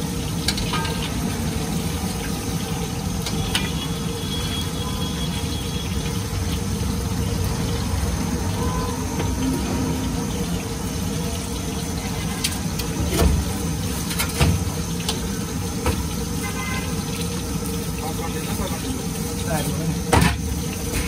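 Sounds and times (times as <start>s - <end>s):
food sizzling in hot oil: 0.0s - 21.0s
metal skimmer clinking on pan: 0.5s - 1.2s.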